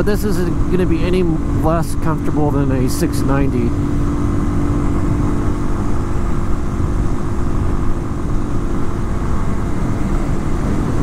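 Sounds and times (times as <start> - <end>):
motorcycle engine cruising: 0.0 - 11.0
wind noise on microphone: 3.7 - 11.0.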